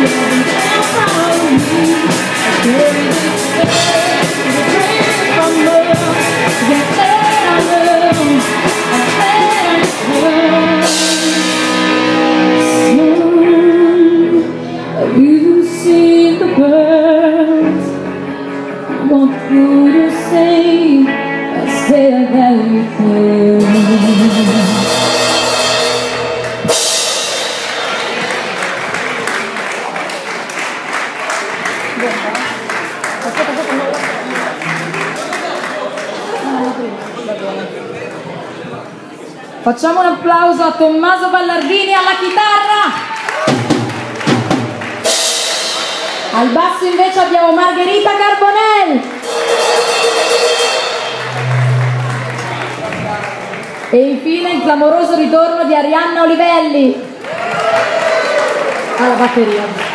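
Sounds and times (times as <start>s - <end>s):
female lead vocal: 0.0s - 11.4s, 19.0s - 24.9s
live rock band playing: 0.0s - 35.7s, 43.2s - 54.0s
cymbal crashes: 24.1s - 28.4s, 49.2s - 53.6s.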